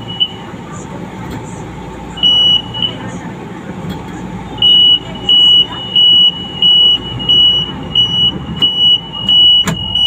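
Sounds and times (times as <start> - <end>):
low train rumble: 0.0 - 10.0
train warning buzzer beeping: 2.2 - 3.0, 4.6 - 10.0.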